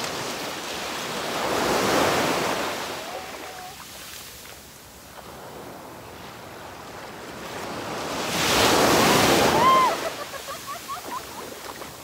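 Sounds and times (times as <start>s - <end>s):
wave washing on shore: 0.0s - 12.0s.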